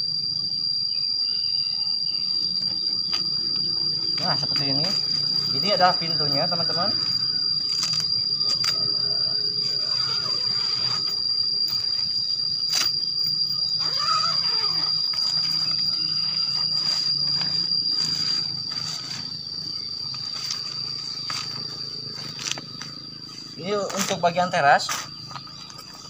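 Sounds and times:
insects droning: 0:00.0 - 0:26.0
tent fabric rustling: 0:09.7 - 0:11.1, 0:13.8 - 0:19.2.

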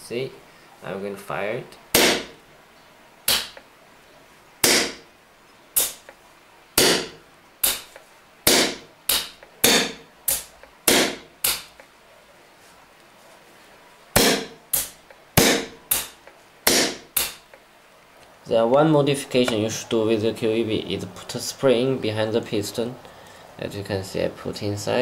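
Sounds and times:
pneumatic valve air pops: 0:04.6 - 0:05.0, 0:05.8 - 0:06.0, 0:06.8 - 0:11.7, 0:14.2 - 0:17.4.

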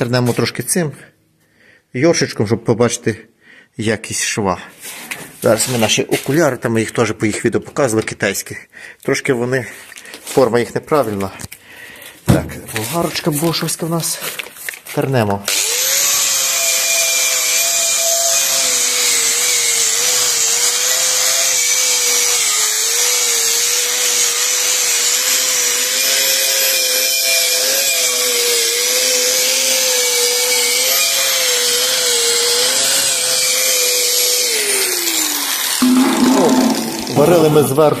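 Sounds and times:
angle grinder with wire brush: 0:15.5 - 0:37.9.

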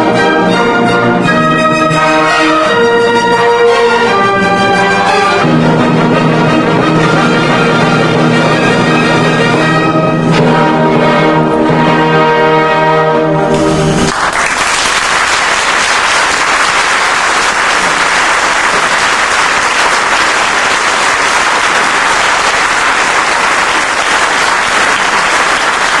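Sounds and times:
audience applauding: 0:13.9 - 0:26.0.

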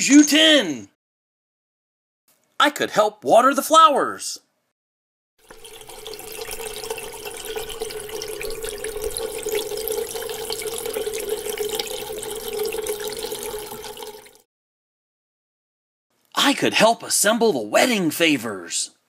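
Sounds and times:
liquid running and splashing: 0:05.4 - 0:14.4.

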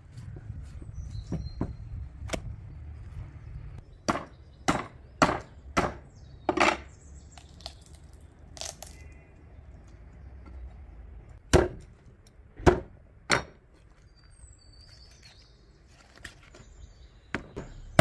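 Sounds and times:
cleaver chopping on wooden board: 0:04.1 - 0:06.0.

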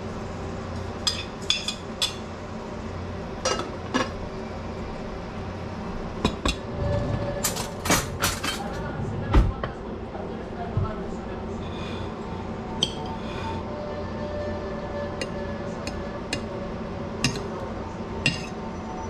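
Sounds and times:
low hum: 0:04.0 - 0:19.0.

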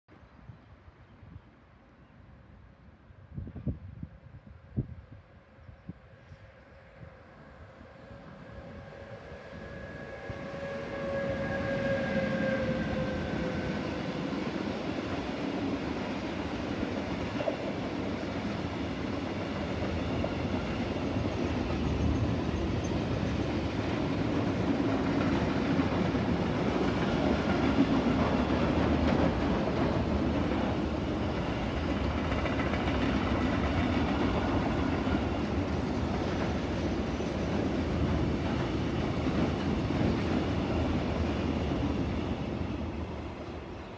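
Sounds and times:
electric locomotive whine: 0:02.1 - 0:43.9
freight wagons rumbling on rails: 0:09.7 - 0:43.8.

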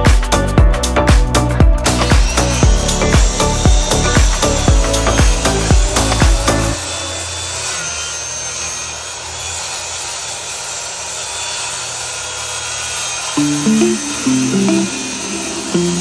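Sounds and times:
background music: 0:00.0 - 0:07.3, 0:13.4 - 0:16.0
power tool cutting plywood: 0:01.2 - 0:16.0.

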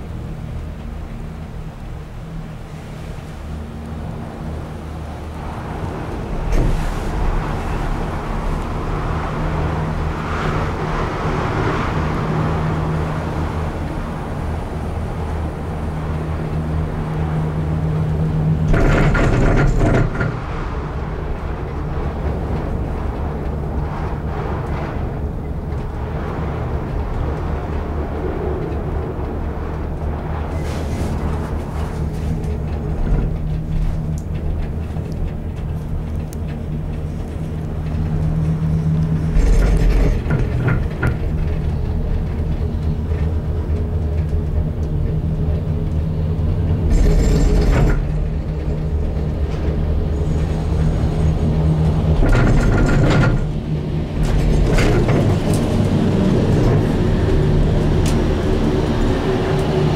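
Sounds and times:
gondola cabin low hum: 0:00.0 - 0:59.9
loud clattering rumble: 0:00.0 - 0:59.9
cabin rattling on rope: 0:50.4 - 0:59.2.

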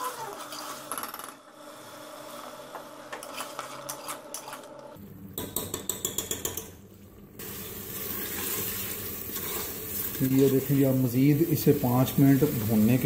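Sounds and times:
metal spoon scraping pot: 0:00.1 - 0:01.0, 0:03.1 - 0:04.9
food frying: 0:07.4 - 0:13.0.

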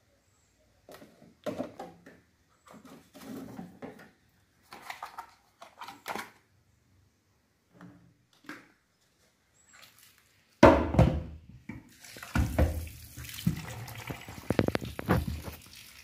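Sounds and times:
plastic containers clattering: 0:00.8 - 0:06.5, 0:10.6 - 0:16.0.

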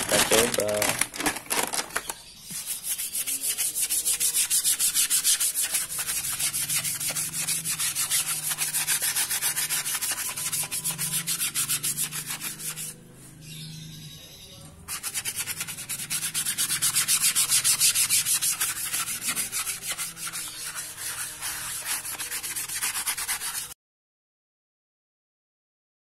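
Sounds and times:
wet cloth being scrubbed: 0:02.5 - 0:13.0, 0:14.9 - 0:23.7.

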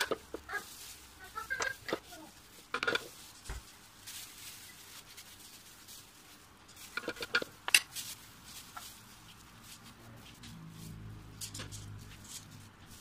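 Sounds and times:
metal spoon scraping fruit: 0:01.4 - 0:03.2, 0:06.7 - 0:08.1.

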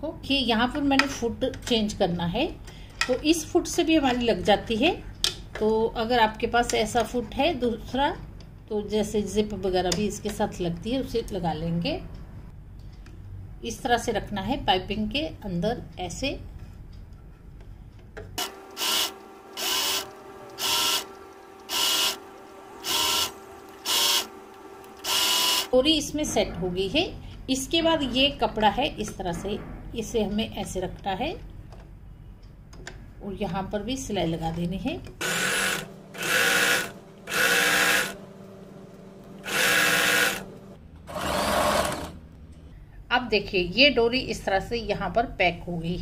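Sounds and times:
steady hum: 0:15.8 - 0:30.9, 0:31.9 - 0:43.1
sewing machine stitching: 0:18.4 - 0:25.8, 0:35.2 - 0:38.2, 0:39.4 - 0:40.5, 0:41.1 - 0:42.2.

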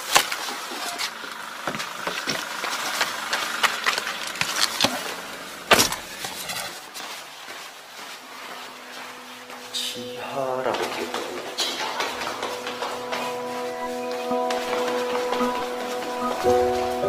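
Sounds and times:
clicks rattles and rustling: 0:01.8 - 0:06.8
car door shutting: 0:04.2 - 0:06.6.

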